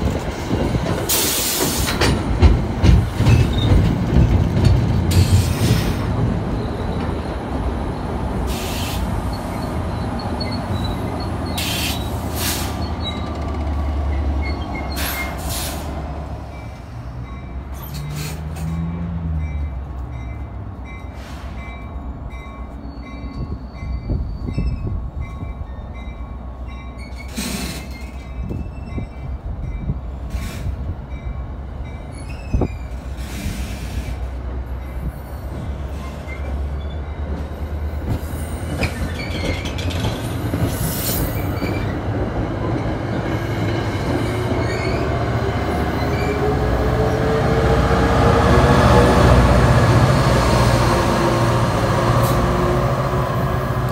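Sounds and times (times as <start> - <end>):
train wheels rumbling: 0.0 - 53.9
wheel squeals and clicks: 38.7 - 42.0
diesel locomotive whine: 39.7 - 53.9.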